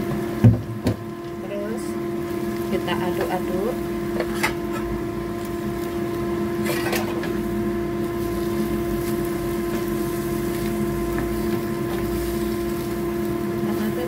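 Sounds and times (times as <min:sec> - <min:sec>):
machine hum: 0:00.0 - 0:14.0
wooden spatula scraping pan: 0:04.2 - 0:04.9.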